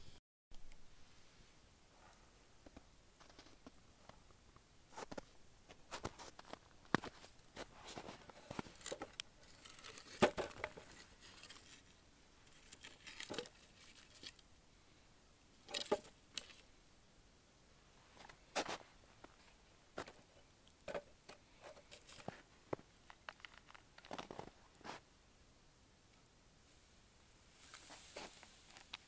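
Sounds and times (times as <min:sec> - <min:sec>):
firewood knocking and clattering: 0:08.0 - 0:11.7, 0:15.7 - 0:16.6.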